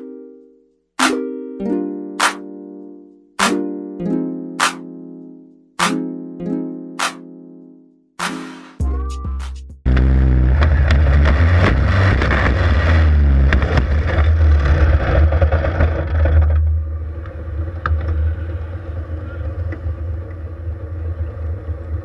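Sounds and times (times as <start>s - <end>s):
race car engine running hard: 9.9s - 22.0s.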